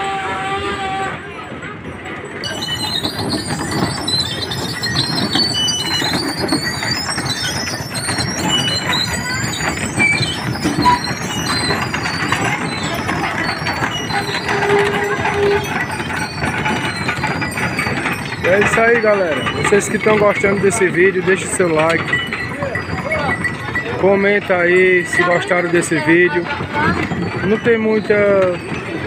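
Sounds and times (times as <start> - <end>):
wooden axles squealing and creaking: 0.0 - 29.0
cart wheels rolling rumble: 1.3 - 29.0.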